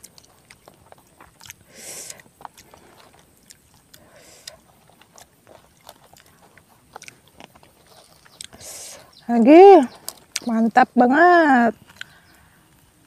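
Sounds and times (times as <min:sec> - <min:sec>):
wet mouth clicks: 0:00.0 - 0:08.9, 0:10.0 - 0:10.5, 0:11.8 - 0:12.2
fingers rustling food on a leaf: 0:00.0 - 0:10.8
close chewing: 0:00.0 - 0:11.0, 0:11.7 - 0:13.0.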